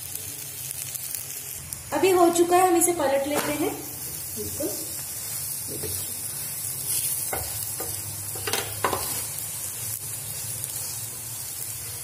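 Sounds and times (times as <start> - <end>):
flatbread sizzling in oil: 0.0 - 12.0
spatula scraping a griddle: 4.9 - 12.0.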